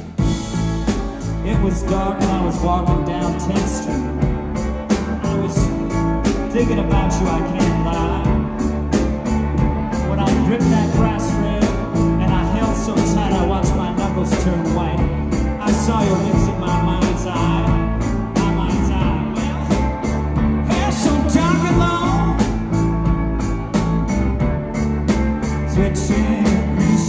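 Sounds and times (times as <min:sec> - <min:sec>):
live rock band playing: 0:00.0 - 0:27.0
person singing: 0:00.5 - 0:22.9, 0:25.4 - 0:27.0.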